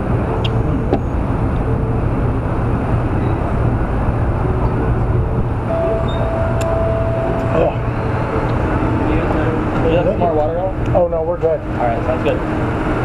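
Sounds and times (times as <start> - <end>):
low outdoor rumble: 0.0 - 13.0
thin steady tone: 3.1 - 10.4.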